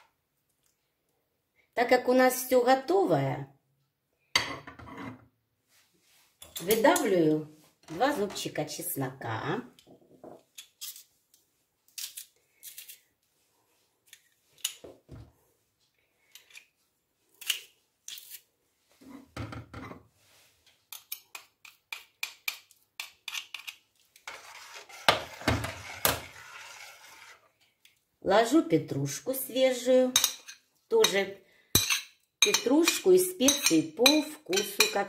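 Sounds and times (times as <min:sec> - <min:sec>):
scraping with sharp knocks: 0:24.2 - 0:27.5.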